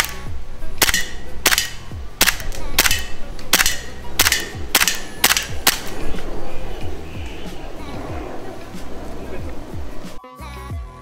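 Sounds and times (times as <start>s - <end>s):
pistol slide cycling: 0.0s - 6.4s
airsoft pistol shots: 0.8s - 6.0s.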